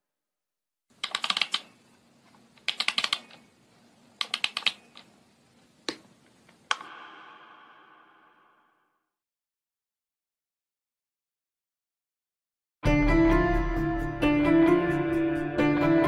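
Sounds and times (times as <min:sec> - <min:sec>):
rapid typing clicks: 0:01.0 - 0:01.8, 0:02.6 - 0:03.5, 0:04.2 - 0:05.1.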